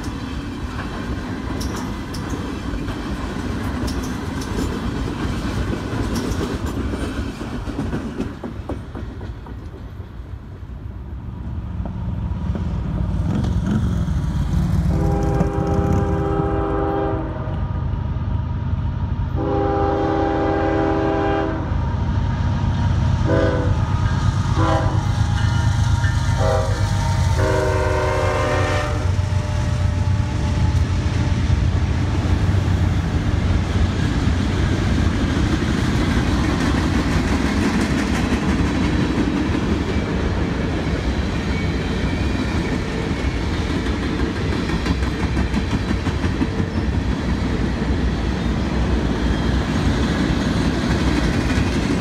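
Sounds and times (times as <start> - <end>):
train wheels clacking over rails: 0.0 - 10.6, 11.7 - 17.1, 23.3 - 52.0
diesel locomotive engine rumble: 0.0 - 52.0
train air horn blasts: 14.8 - 17.7, 19.4 - 21.8, 23.2 - 25.6, 26.3 - 30.7.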